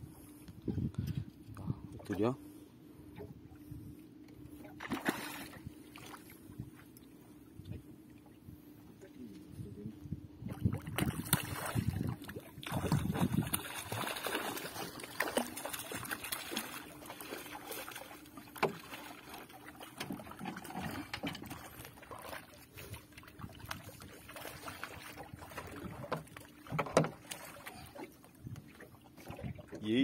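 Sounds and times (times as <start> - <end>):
steady low hum: 0.0 - 30.0
water splashing: 4.8 - 6.4, 10.5 - 29.9
knocks against wooden boat: 26.1 - 27.2.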